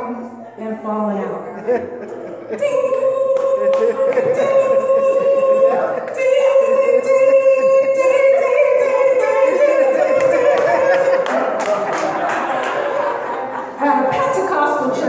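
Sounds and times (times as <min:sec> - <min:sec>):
congregation shouting and singing: 0:02.5 - 0:15.0
hand claps: 0:03.3 - 0:04.7, 0:10.1 - 0:13.0.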